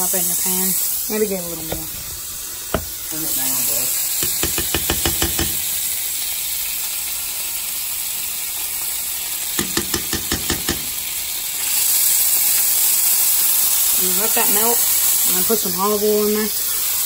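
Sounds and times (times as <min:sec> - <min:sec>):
butter sizzling in a pan: 0:00.0 - 0:17.0
metal spoon tapping a pan: 0:04.2 - 0:05.7, 0:09.6 - 0:11.0.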